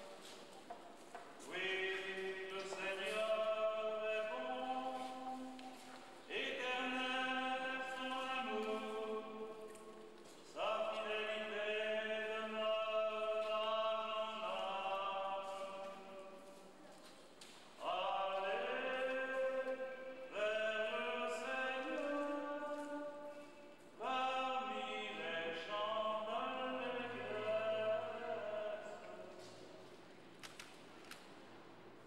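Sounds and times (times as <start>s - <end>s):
slow liturgical chant singing: 0.0s - 32.0s.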